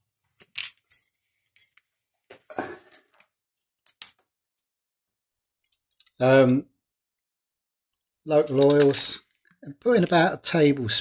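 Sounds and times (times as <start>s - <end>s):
kitchen items clicking and knocking: 2.4s - 3.2s.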